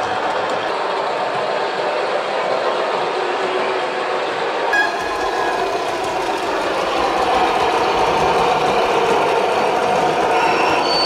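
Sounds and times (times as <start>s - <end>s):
model train running on track: 0.0s - 11.0s.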